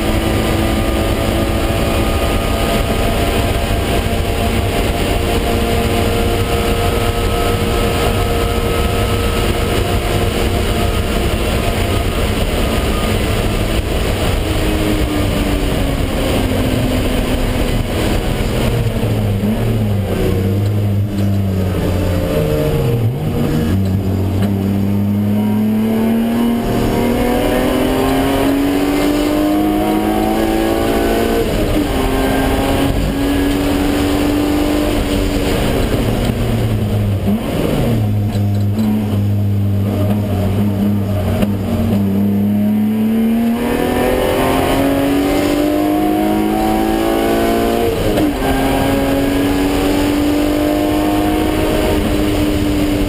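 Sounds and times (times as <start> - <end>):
car engine revving: 0.0 - 53.0.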